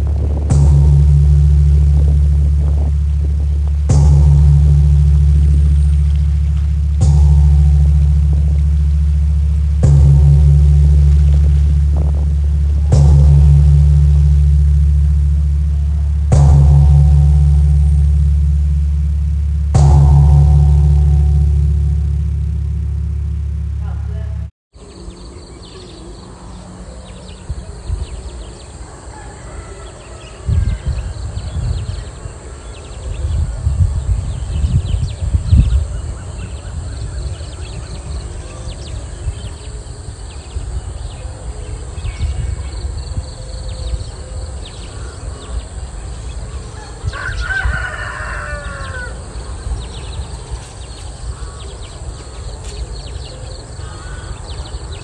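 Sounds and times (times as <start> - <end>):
steady high hiss: 0.0 - 23.0, 24.8 - 55.0
wind rumbling on microphone: 0.0 - 55.0
bird call: 24.8 - 55.0.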